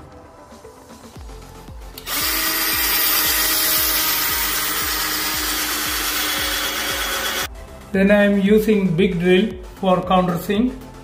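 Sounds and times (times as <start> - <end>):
cordless drill boring into wood: 2.0 - 7.5.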